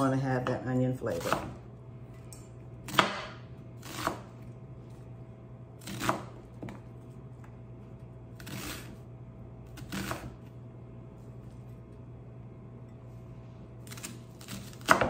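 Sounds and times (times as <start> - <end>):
steady low hum: 0.0 - 15.0
knife cutting onion on board: 0.5 - 1.6, 2.8 - 4.4, 5.8 - 6.8, 8.3 - 9.0, 9.7 - 10.5, 13.8 - 15.0.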